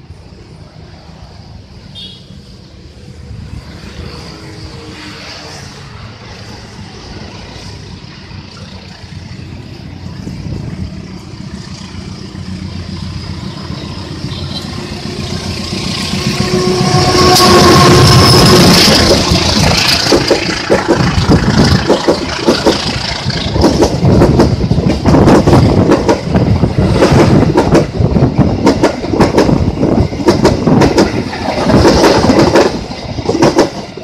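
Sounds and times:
train rushing past: 0.0 - 34.0
locomotive engine rumble: 7.0 - 34.0.

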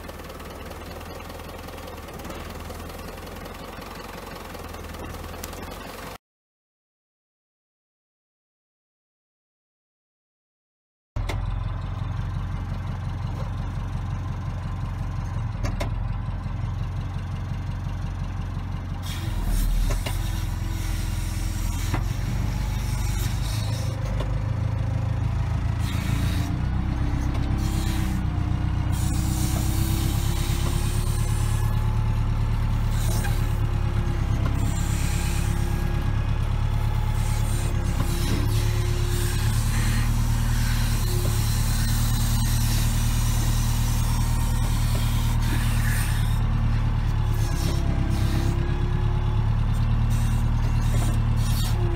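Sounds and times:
diesel engine under load: 0.0 - 6.2, 11.2 - 51.9
hydraulic whine: 19.0 - 51.9.

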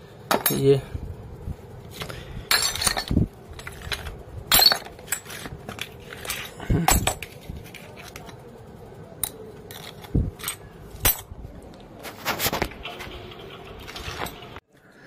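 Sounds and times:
metal tools dropped into wooden box: 0.3 - 0.8, 2.0 - 8.2, 9.2 - 11.3.

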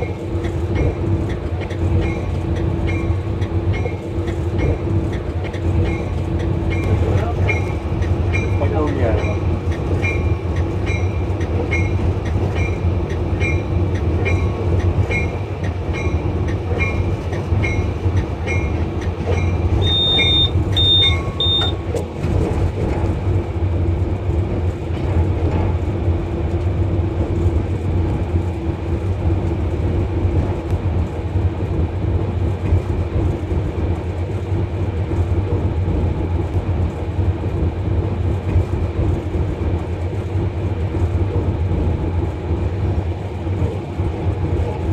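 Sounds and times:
electronic beeper: 19.8 - 21.8.

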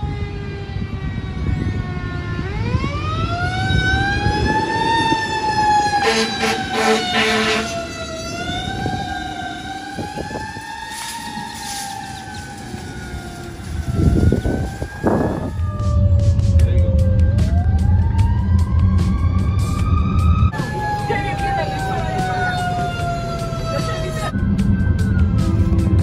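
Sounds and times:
fire engine siren wailing: 0.0 - 26.0
short horn blasts: 6.0 - 7.9.

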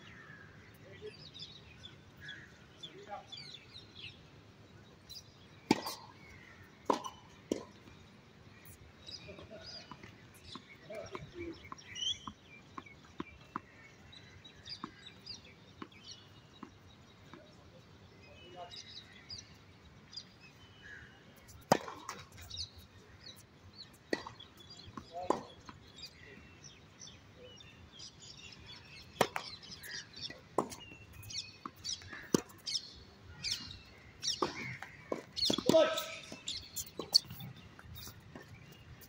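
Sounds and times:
birds chirping: 0.0 - 39.0
tennis ball bouncing on hard court: 5.7 - 6.0, 6.8 - 7.8, 21.6 - 22.4, 29.2 - 37.4.

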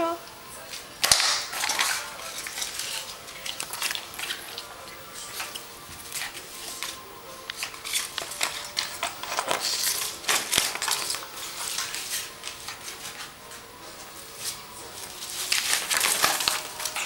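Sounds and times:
paper crinkling and rustling: 0.6 - 17.0.

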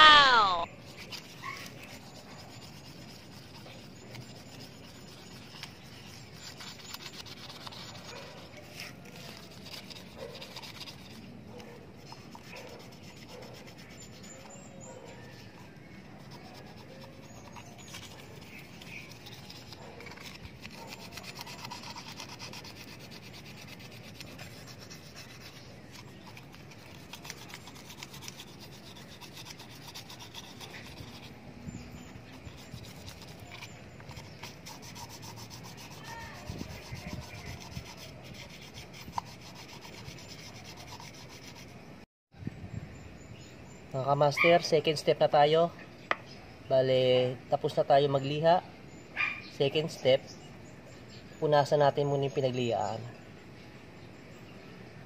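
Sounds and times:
sandpaper rubbing on metal: 0.0 - 41.8.

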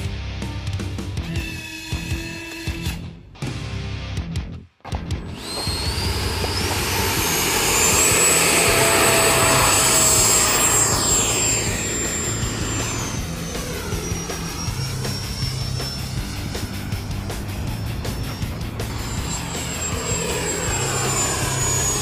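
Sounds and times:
electric ducted fan whine: 5.4 - 22.0.

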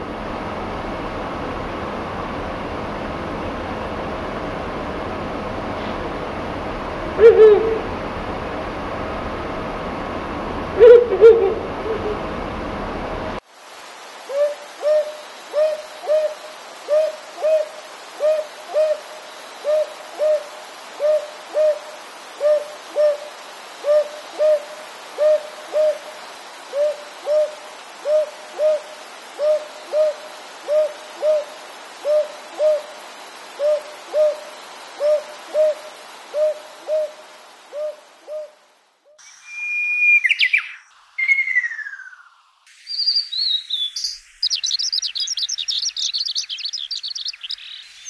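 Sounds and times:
owl two-note hoot: 7.2 - 8.0, 10.8 - 12.3, 14.3 - 33.0, 33.6 - 40.4.

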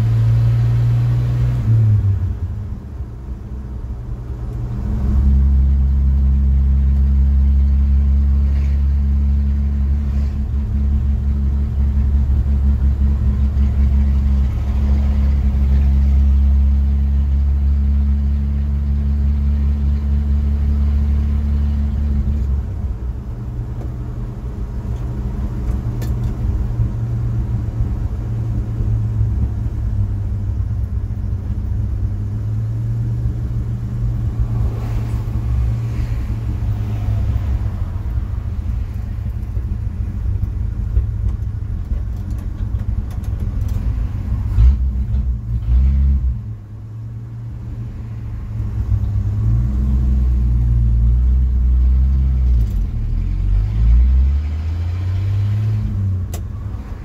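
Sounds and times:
vehicle engine drone inside cab: 0.0 - 57.0.

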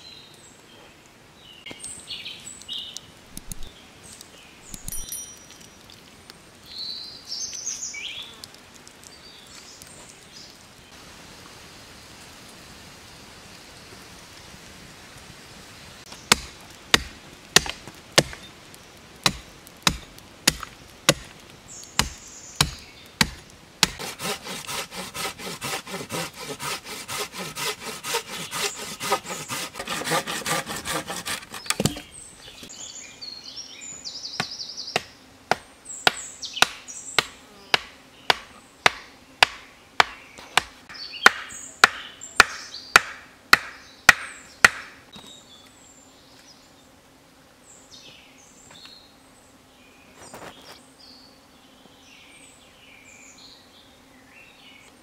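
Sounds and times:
hand saw cutting log: 3.3 - 3.7, 22.0 - 32.1
hatchet striking wooden stake: 3.3 - 3.7, 4.7 - 5.6, 16.3 - 18.5, 19.2 - 21.4, 22.0 - 32.1, 34.4 - 45.0.

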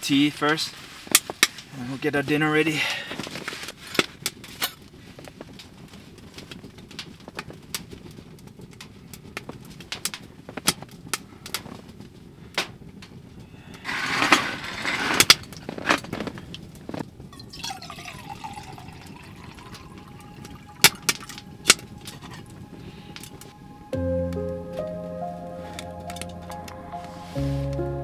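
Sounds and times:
wood fire crackling: 0.0 - 28.0
liquid pouring into mug: 17.4 - 22.5.

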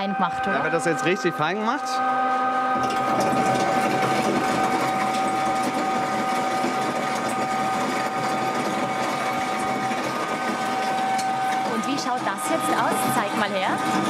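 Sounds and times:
electric grinding mill whine: 0.0 - 14.0
gritty stone grinding: 2.9 - 12.1.

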